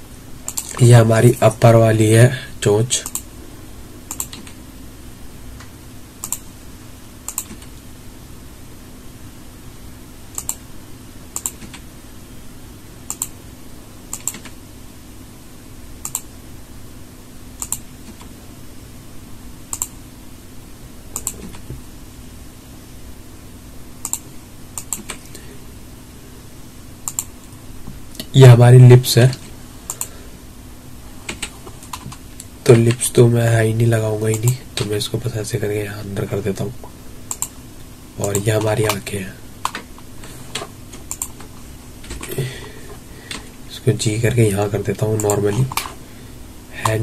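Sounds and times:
faint low hum: 0:00.0 - 0:47.0
keyboard and mouse clicks: 0:00.4 - 0:00.8, 0:03.0 - 0:03.3, 0:04.1 - 0:04.6, 0:05.6 - 0:06.4, 0:07.3 - 0:07.7, 0:10.3 - 0:10.6, 0:11.3 - 0:11.8, 0:13.1 - 0:13.3, 0:14.1 - 0:14.6, 0:16.0 - 0:16.3, 0:17.6 - 0:18.3, 0:19.7 - 0:20.0, 0:21.1 - 0:21.8, 0:24.0 - 0:25.3, 0:27.0 - 0:27.3, 0:29.3 - 0:30.1, 0:31.3 - 0:33.0, 0:37.3 - 0:37.6, 0:40.5 - 0:42.4, 0:45.2 - 0:46.0.

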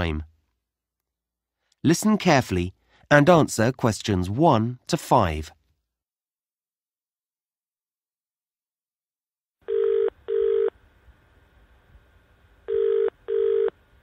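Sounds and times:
telephone ringing tone: 0:09.6 - 0:10.8, 0:12.7 - 0:13.8.

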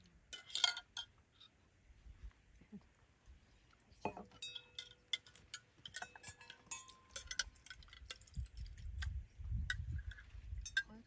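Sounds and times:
metal forks clinking on bowls: 0:00.4 - 0:01.1, 0:04.3 - 0:08.2, 0:10.1 - 0:11.0.

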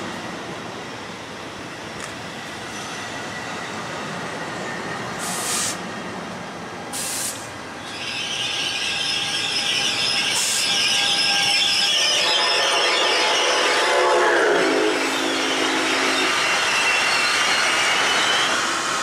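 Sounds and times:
locomotive whine and hum: 0:00.0 - 0:19.0
train coaches rumbling on rails: 0:00.0 - 0:19.0
short hissing bursts: 0:05.2 - 0:05.8, 0:07.0 - 0:07.5.

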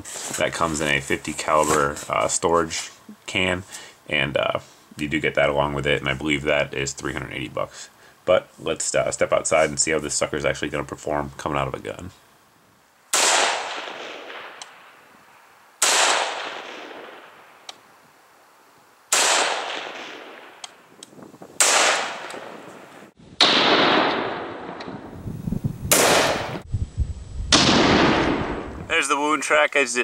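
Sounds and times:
rifle shots with echo: 0:13.1 - 0:14.9, 0:15.8 - 0:17.4, 0:19.1 - 0:20.6, 0:21.6 - 0:22.8, 0:23.4 - 0:25.0, 0:25.9 - 0:26.6, 0:27.5 - 0:28.7.

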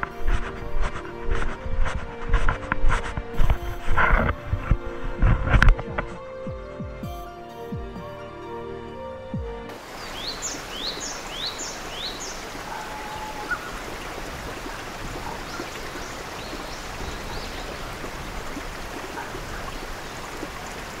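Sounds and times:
stream rushing over rocks: 0:09.7 - 0:21.0
bird chirping: 0:09.8 - 0:13.9, 0:15.2 - 0:18.3.

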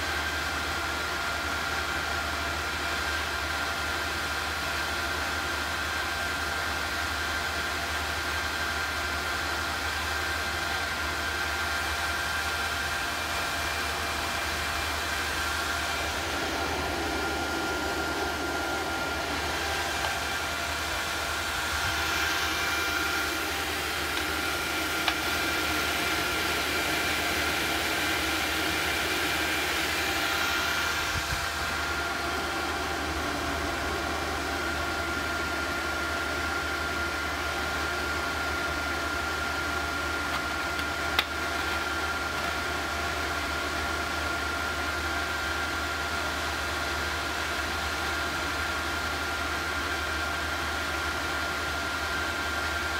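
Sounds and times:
fan-like hiss: 0:13.1 - 0:37.5.

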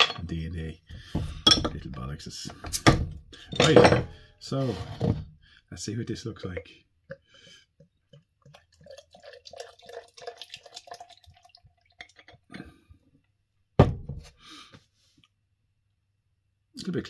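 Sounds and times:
beer glugging and fizzing: 0:06.4 - 0:12.6.

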